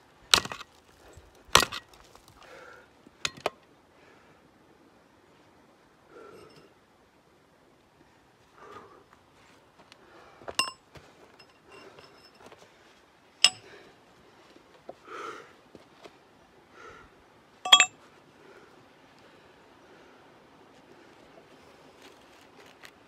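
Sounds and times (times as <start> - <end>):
hammer striking metal chisel: 13.4 - 13.6, 17.7 - 17.9.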